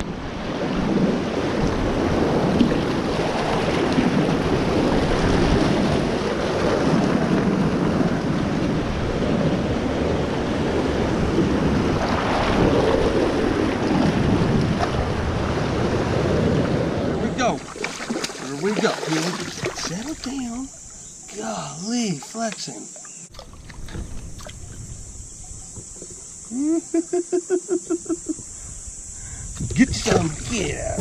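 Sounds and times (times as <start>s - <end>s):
whitewater rushing: 17.2s - 22.4s, 29.8s - 31.0s.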